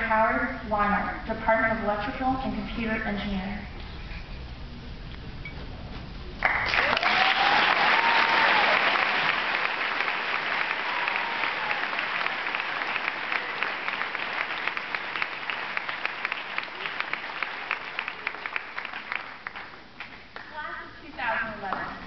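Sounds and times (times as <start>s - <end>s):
audience applauding: 6.4s - 20.5s.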